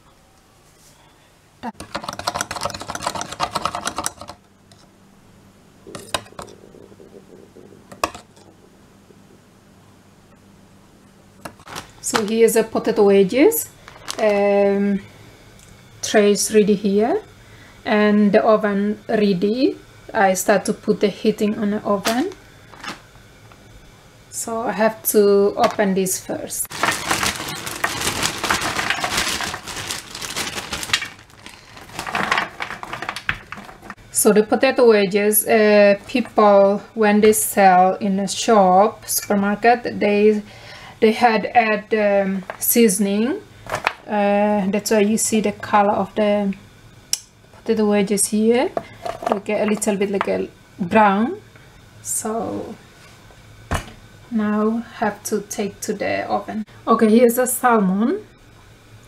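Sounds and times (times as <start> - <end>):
plastic bag crinkling: 11.5 - 12.2, 26.7 - 34.0.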